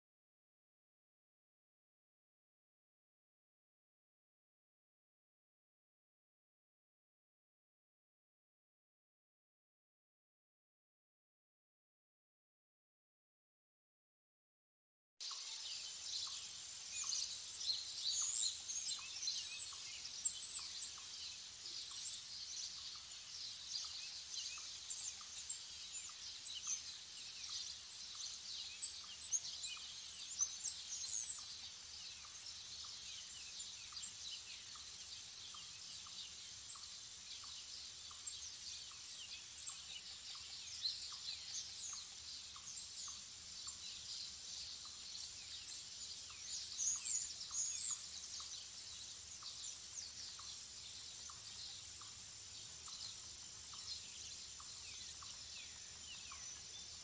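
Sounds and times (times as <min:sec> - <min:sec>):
songbirds chirping and trilling: 0:15.2 - 0:57.0.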